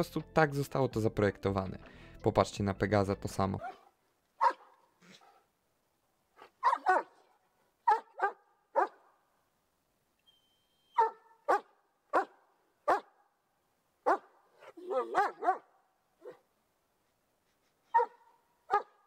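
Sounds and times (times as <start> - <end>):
dog barking: 3.6 - 5.5, 6.4 - 9.2, 10.9 - 13.2, 14.0 - 16.4, 17.9 - 19.0.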